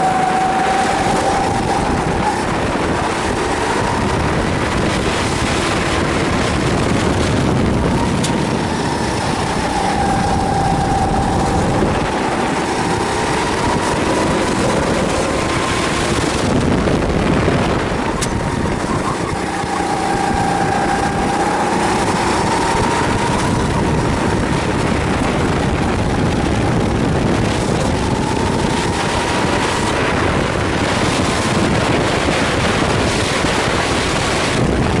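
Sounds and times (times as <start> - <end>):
kart engine revving: 0.0 - 35.0
wind noise on microphone: 0.0 - 35.0.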